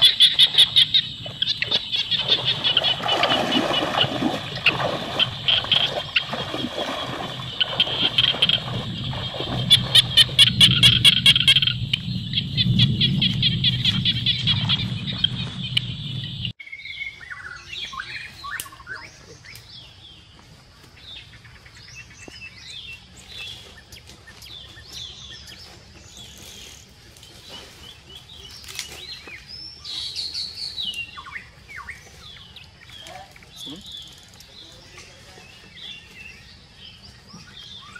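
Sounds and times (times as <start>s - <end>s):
birds chirping in trills: 0.0s - 37.9s
footsteps splashing through water: 1.2s - 11.4s.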